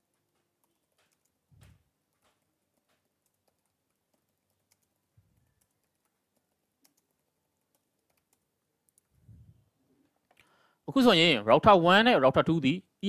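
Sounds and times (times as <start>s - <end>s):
keyboard typing: 0.0s - 9.1s.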